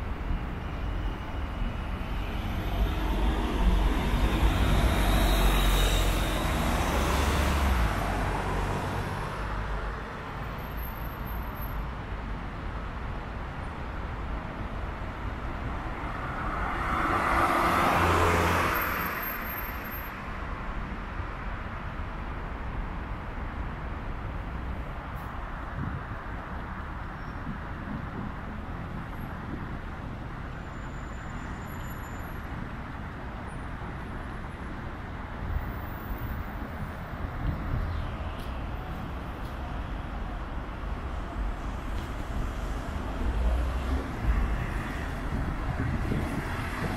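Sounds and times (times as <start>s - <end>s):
low engine rumble of vehicles: 0.0s - 46.9s
vehicle passing: 16.1s - 19.0s.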